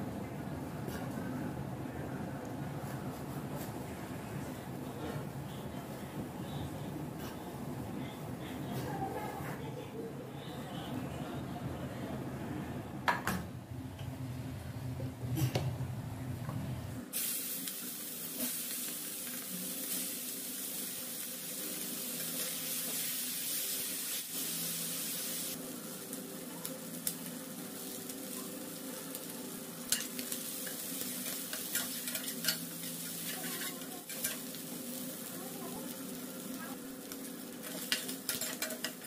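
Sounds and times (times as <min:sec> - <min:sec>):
prawns sizzling in hot oil: 0:17.1 - 0:39.0
spatula scraping a pan: 0:29.9 - 0:34.5.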